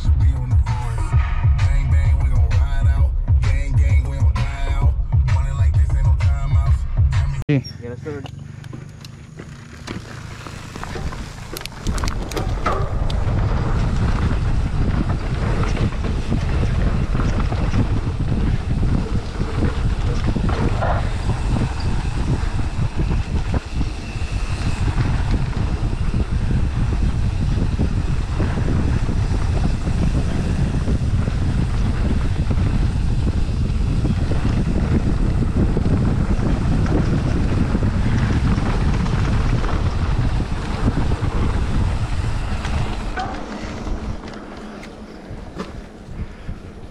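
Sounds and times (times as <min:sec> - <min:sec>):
tyres rumbling over dirt trail: 0:00.0 - 0:46.9
wind buffeting microphone: 0:10.1 - 0:46.9.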